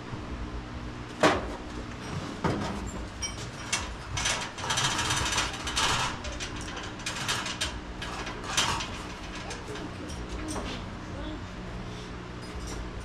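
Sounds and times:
metal knocking and rattling: 0:01.2 - 0:11.0.

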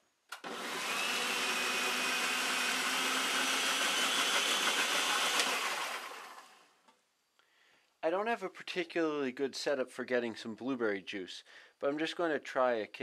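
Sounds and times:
food processor motor whining: 0:00.4 - 0:06.6
food processor switch click: 0:05.3 - 0:05.6.

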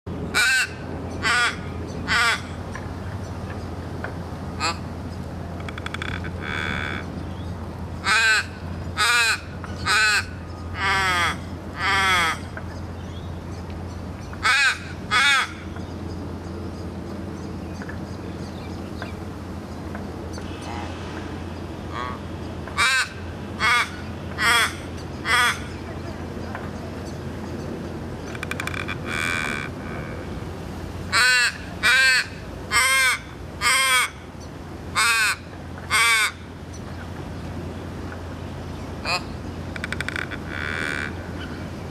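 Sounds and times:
raven cawing: 0:00.3 - 0:02.6, 0:04.6 - 0:04.8, 0:05.7 - 0:07.1, 0:08.0 - 0:12.5, 0:14.4 - 0:15.6, 0:21.9 - 0:25.7, 0:28.3 - 0:30.2, 0:31.1 - 0:34.2, 0:34.9 - 0:36.5, 0:39.1 - 0:41.6.

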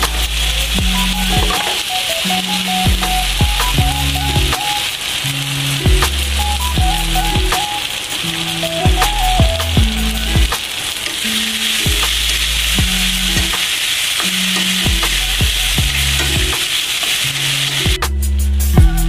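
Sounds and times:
background music with a beat: 0:00.0 - 0:10.8, 0:11.4 - 0:16.8, 0:17.6 - 0:19.0
vegetables sizzling in a wok: 0:00.0 - 0:18.8.

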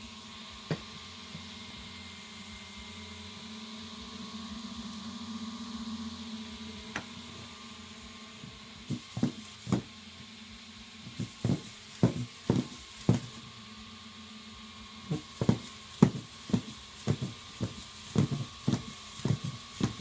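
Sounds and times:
faint steady hum: 0:00.0 - 0:20.0
robot feet tapping on whiteboard: 0:08.9 - 0:09.9, 0:11.1 - 0:13.4, 0:15.1 - 0:20.0.

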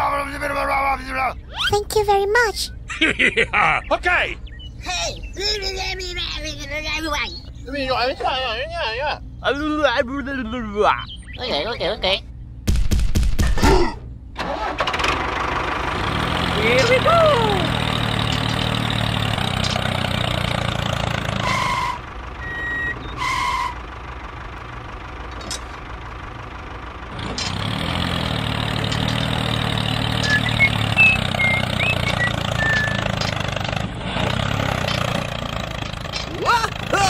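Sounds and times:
tractor engine running: 0:14.1 - 0:37.0
short beeps: 0:22.4 - 0:23.0.

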